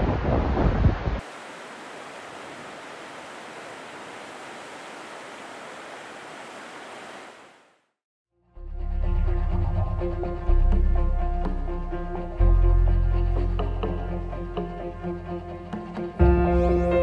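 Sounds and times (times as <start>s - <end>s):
river water rushing: 1.2s - 7.9s.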